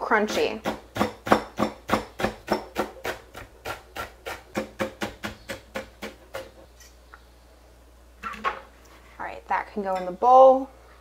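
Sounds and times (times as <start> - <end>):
knife chopping cabbage on board: 0.4 - 6.5.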